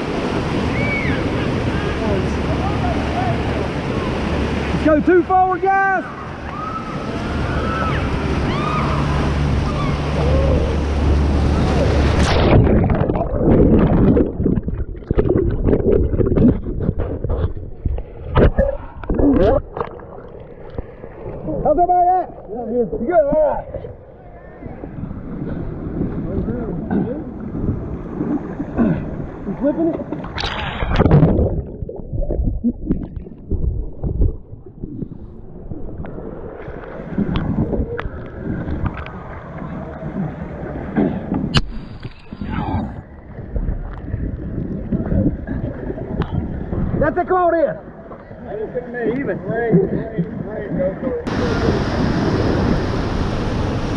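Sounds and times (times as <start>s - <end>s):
water splashes: 0.0s - 53.9s
wind rumbling on microphone: 6.1s - 53.9s
river rapids hissing: 51.3s - 53.9s.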